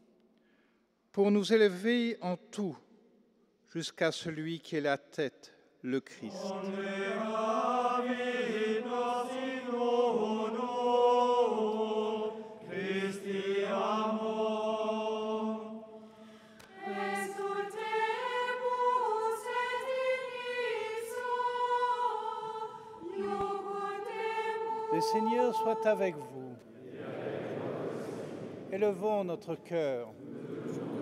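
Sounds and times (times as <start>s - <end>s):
choir singing a hymn: 6.2s - 31.0s.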